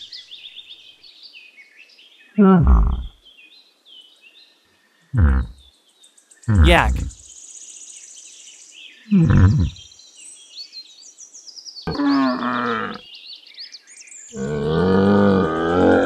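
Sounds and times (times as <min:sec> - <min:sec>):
calf grunting and calling: 0:02.4 - 0:03.1, 0:05.2 - 0:05.6, 0:09.2 - 0:09.8.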